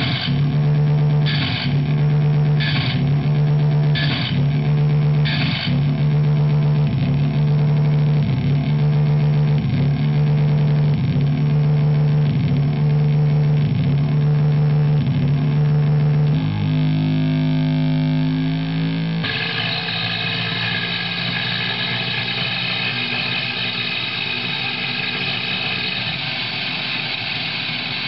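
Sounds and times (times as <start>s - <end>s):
high steady tones: 0.0s - 8.2s, 19.2s - 28.0s
low droning tones: 0.0s - 28.0s.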